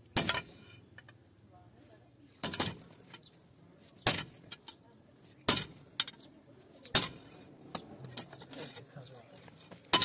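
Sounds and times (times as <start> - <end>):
hammer striking chisel on metal: 0.2 - 0.8, 5.5 - 6.2, 6.9 - 7.5.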